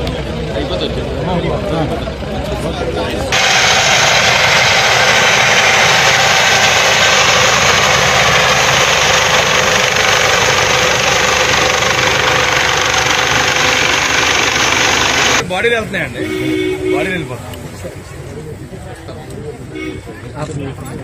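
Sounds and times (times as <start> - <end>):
helicopter rotor and engine roar: 0.0 - 15.4.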